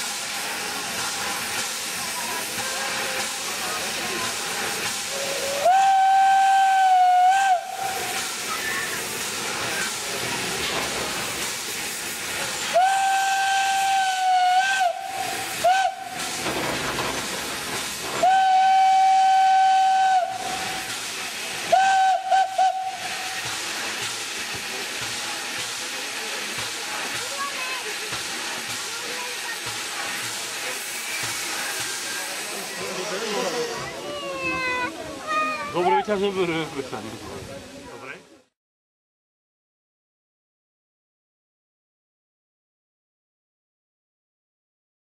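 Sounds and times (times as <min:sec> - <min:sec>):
steam hissing: 0:00.0 - 0:37.5
steam locomotive whistle: 0:05.0 - 0:08.9, 0:12.6 - 0:16.4, 0:18.2 - 0:21.0, 0:21.6 - 0:23.5.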